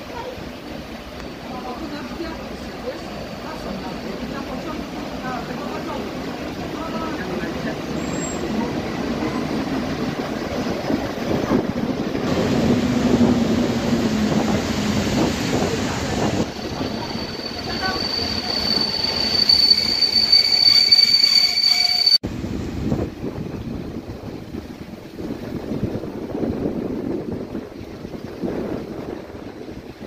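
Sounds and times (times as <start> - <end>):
train coaches rumbling: 0.0 - 30.0
train brakes squealing: 7.8 - 9.6, 16.2 - 22.2.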